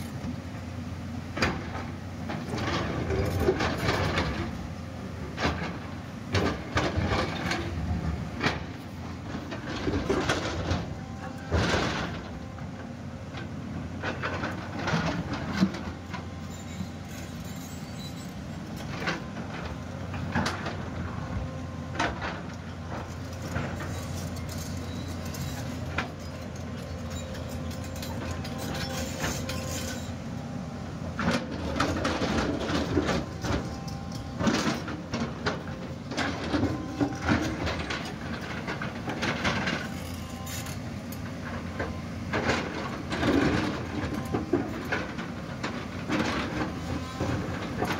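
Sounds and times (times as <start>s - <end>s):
excavator diesel engine running: 0.0s - 47.9s
bucket scraping and clanking on rock: 22.0s - 30.2s, 31.2s - 47.9s.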